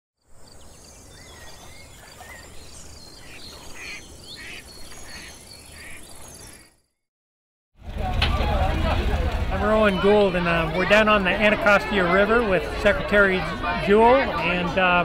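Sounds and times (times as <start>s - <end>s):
birds chirping and whistling: 0.5s - 6.8s.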